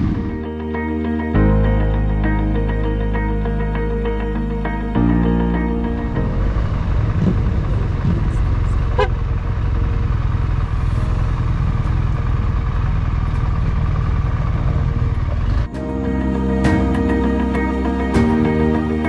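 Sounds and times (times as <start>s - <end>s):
motorcycle engine running: 0.0s - 0.7s, 5.0s - 19.0s.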